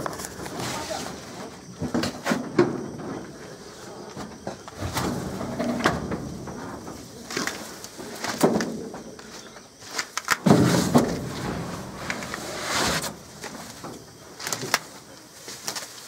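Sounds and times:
knocks and scrapes on wooden crate: 0:10.4 - 0:13.9
heavy thump: 0:10.4 - 0:14.1
rustling in brush: 0:10.9 - 0:16.0.

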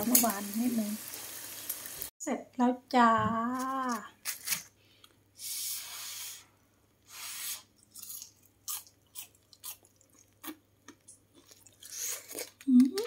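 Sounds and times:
crisp chewing crunches: 0:07.8 - 0:13.0.

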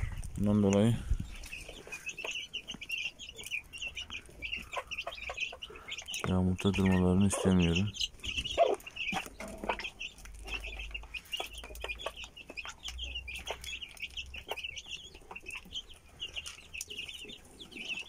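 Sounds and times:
chicks peeping: 0:00.0 - 0:18.0.

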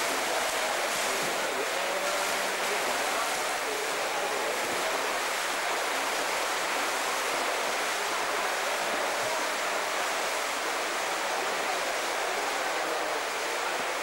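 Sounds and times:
swimmers splashing in water: 0:00.0 - 0:09.3.

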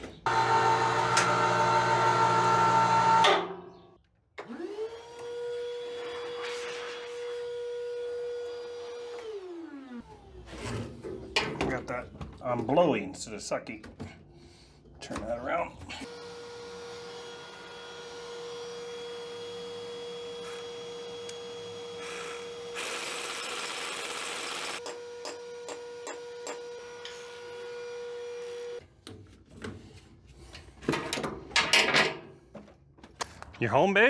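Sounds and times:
shop vacuum whining: 0:00.2 - 0:03.8, 0:04.4 - 0:10.6, 0:16.0 - 0:28.8.

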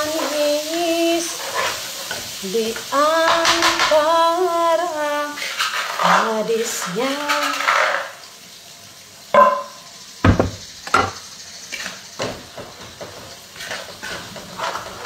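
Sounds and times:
dishes and utensils clattering: 0:09.4 - 0:15.0
heavy knock: 0:10.2 - 0:11.1.

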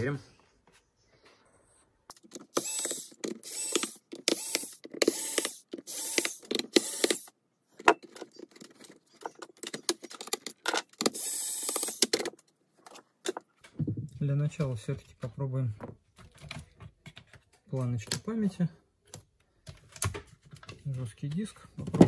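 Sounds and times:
electric screwdriver whirring: 0:02.1 - 0:07.3, 0:11.0 - 0:12.1.

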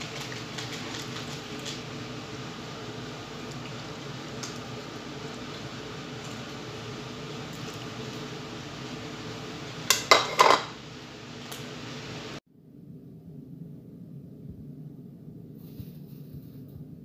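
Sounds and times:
low hum and hiss: 0:00.0 - 0:17.0
bowl clattering on counter: 0:09.9 - 0:10.8.

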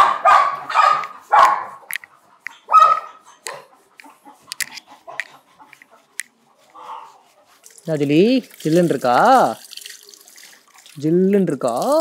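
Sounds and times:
dog barking: 0:00.0 - 0:01.9, 0:02.5 - 0:03.8.

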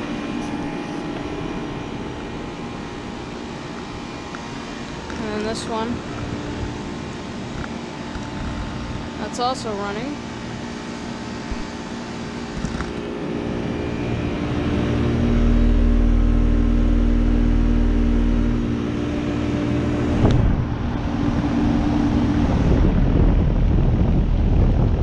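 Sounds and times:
compressor humming: 0:00.0 - 0:25.0
condenser fan rushing: 0:00.0 - 0:25.0
wind rumble on microphone: 0:03.9 - 0:09.5, 0:12.4 - 0:25.0.

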